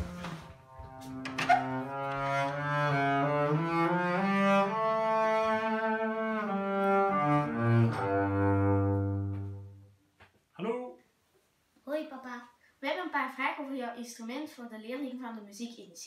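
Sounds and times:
bowed double bass melody: 0.0 - 10.0.

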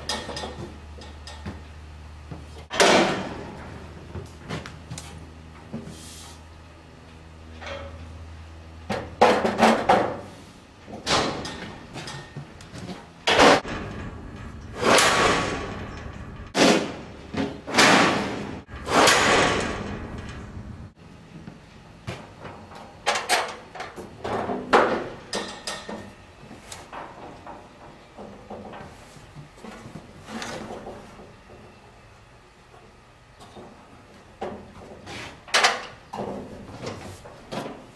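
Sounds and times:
metal panels clanking and banging: 0.0 - 1.6, 2.6 - 4.6, 7.6 - 8.2, 8.8 - 10.3, 10.9 - 21.0, 22.2 - 26.2, 33.5 - 37.9
metal rattles: 13.2 - 21.0.

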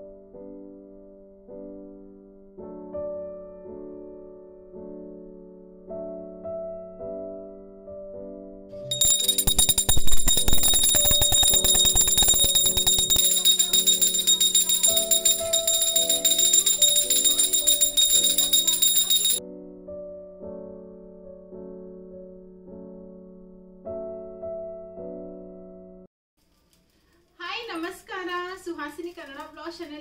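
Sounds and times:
soft keyboard music: 0.0 - 26.1
hand bell ringing: 8.9 - 19.4.

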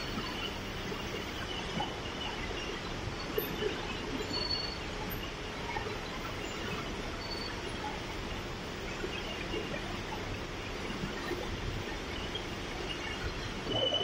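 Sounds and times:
factory machinery hum and hiss: 0.0 - 14.0.

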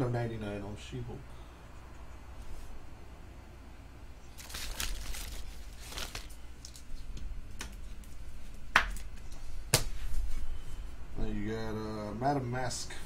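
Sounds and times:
plastic card sleeves rustling: 4.3 - 7.1.

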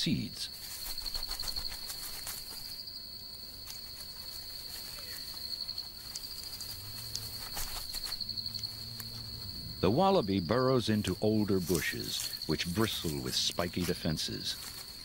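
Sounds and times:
insect trilling: 0.0 - 15.0
rustles: 0.0 - 15.0
faint clicks: 6.0 - 9.2.

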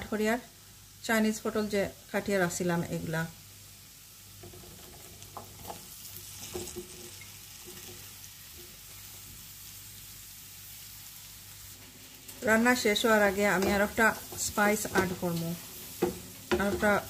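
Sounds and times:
vegetables sizzling in oil: 0.0 - 17.0
pieces knocking in pan: 4.4 - 8.1, 13.3 - 17.0.

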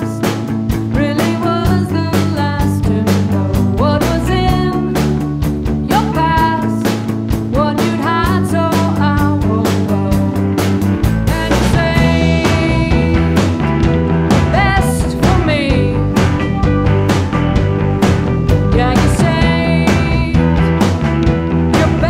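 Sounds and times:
woman singing: 0.0 - 5.2, 5.8 - 10.5, 11.1 - 13.7, 14.4 - 16.3, 18.6 - 20.9, 21.7 - 22.0
rock band playing: 0.0 - 22.0.

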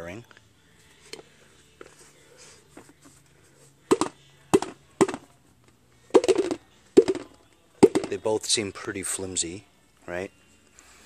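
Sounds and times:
sharp knocks on steel wheels: 3.9 - 5.2, 6.2 - 8.2.

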